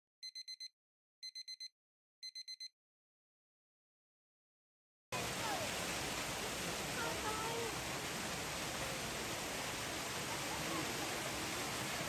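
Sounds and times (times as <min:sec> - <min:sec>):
splashing pool water: 0:05.2 - 0:12.0.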